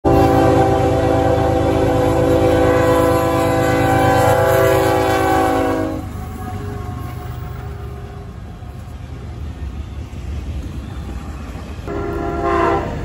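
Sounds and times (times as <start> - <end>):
locomotive air horn chord: 0.0 - 7.2, 11.9 - 13.0
passing train rumble: 0.0 - 13.0.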